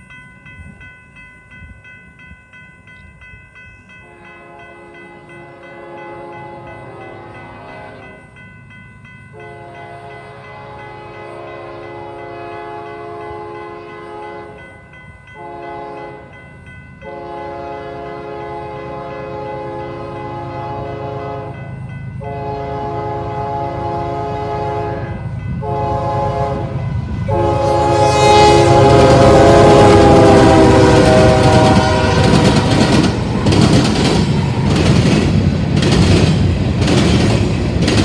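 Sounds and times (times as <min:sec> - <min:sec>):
locomotive air horn blasts: 0:04.0 - 0:08.2, 0:09.3 - 0:14.6, 0:15.4 - 0:16.2, 0:17.0 - 0:21.6, 0:22.2 - 0:33.6.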